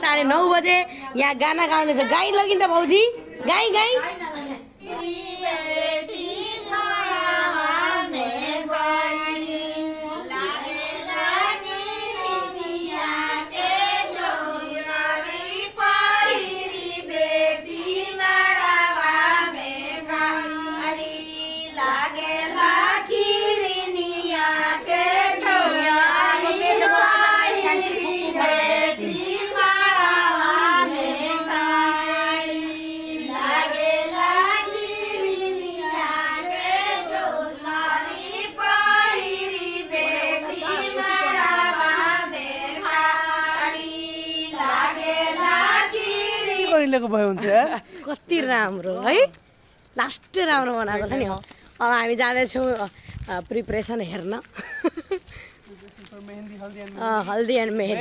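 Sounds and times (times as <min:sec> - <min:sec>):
women singing together: 0:04.6 - 0:48.5.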